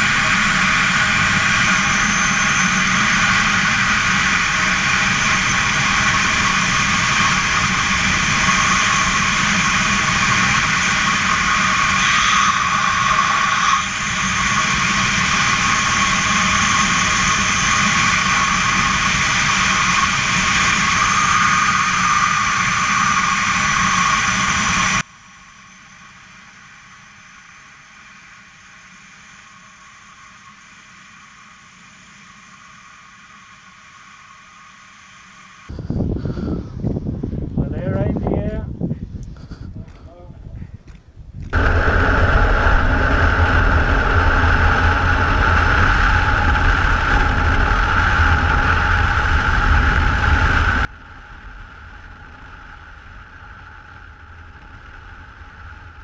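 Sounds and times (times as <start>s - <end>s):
wind rushing over helmet camera: 35.7s - 50.9s.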